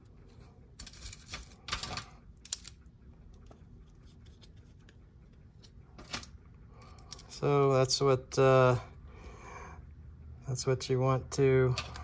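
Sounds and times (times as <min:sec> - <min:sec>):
metal parts clicking and scraping: 0:00.3 - 0:02.9, 0:05.6 - 0:07.5.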